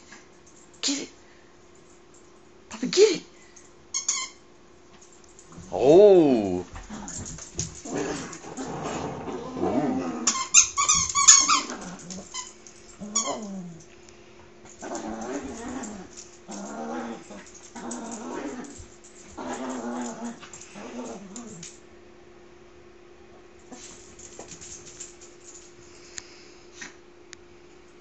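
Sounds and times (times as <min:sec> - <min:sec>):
dogs play-growling: 0:06.7 - 0:13.9, 0:14.6 - 0:21.8
dog squealing: 0:10.2 - 0:11.8.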